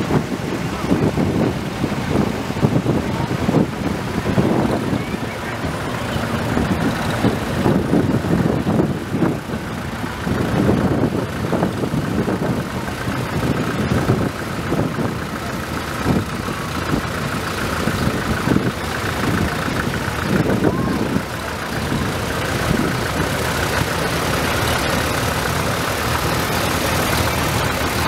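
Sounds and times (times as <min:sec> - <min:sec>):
tractor engines running: 0:00.0 - 0:28.0.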